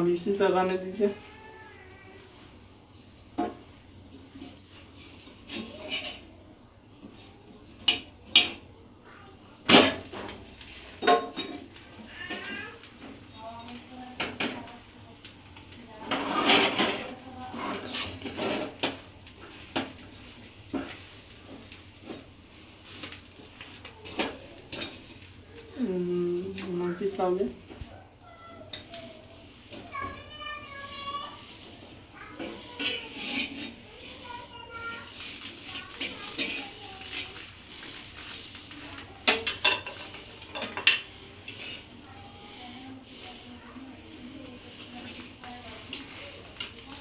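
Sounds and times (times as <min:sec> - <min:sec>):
faint frying sizzle: 0:00.0 - 0:47.0
metal spatula scraping frying pan: 0:04.3 - 0:06.3, 0:16.0 - 0:19.0, 0:31.3 - 0:47.0.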